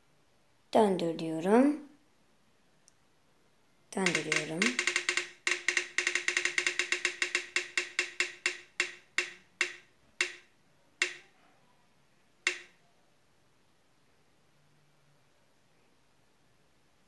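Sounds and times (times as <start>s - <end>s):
spinning wheel ticking clicks: 4.0s - 11.2s, 12.5s - 12.7s.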